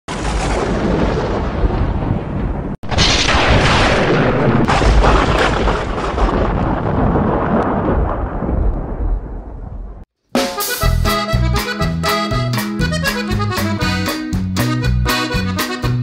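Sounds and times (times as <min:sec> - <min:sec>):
rumbling boom with crackling: 0:00.1 - 0:10.1
loud cinematic hit: 0:02.8 - 0:06.4.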